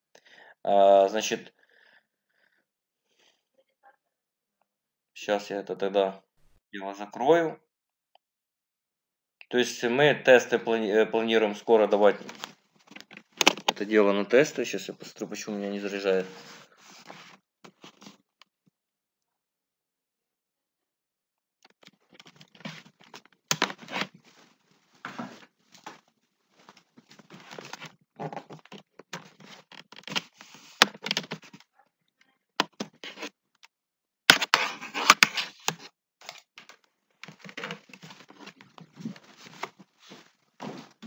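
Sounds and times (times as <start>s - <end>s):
microphone handling rustling: 37.3s - 41.0s.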